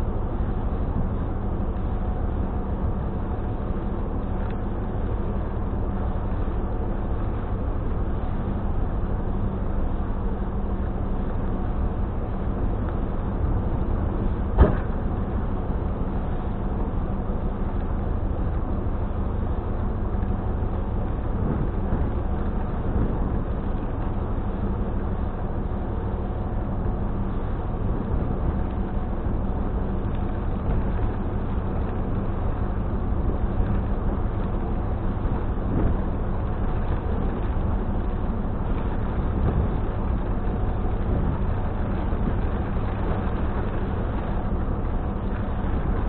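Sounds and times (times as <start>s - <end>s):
vehicle engine drone in cabin: 0.0s - 46.0s.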